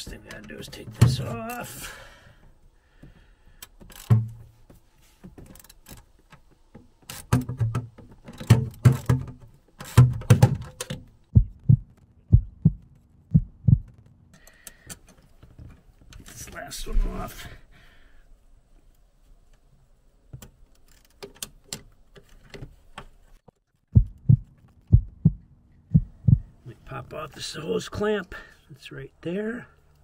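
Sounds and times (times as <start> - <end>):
dull low thumps: 11.3 - 14.1, 24.0 - 26.6.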